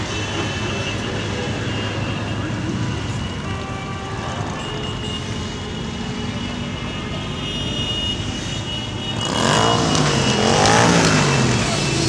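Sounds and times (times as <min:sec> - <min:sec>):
motorcycle engines rumbling: 0:00.0 - 0:12.0
motorcycle accelerating past: 0:09.2 - 0:12.0.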